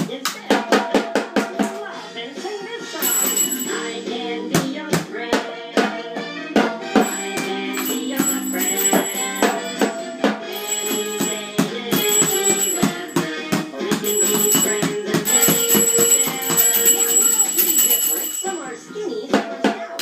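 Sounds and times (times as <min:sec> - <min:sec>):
children's song instrumental: 0:00.0 - 0:20.0
toy drum hits: 0:06.6 - 0:18.2.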